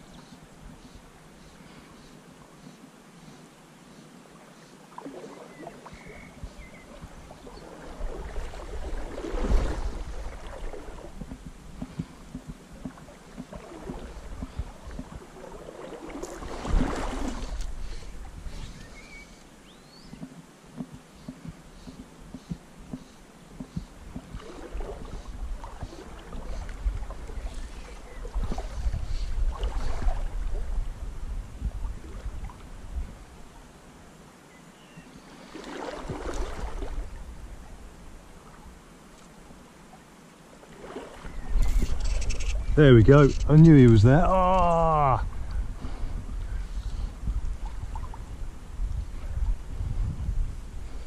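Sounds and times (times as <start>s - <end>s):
river water sloshing around legs: 4.3s - 22.3s, 22.9s - 30.8s, 35.2s - 42.6s.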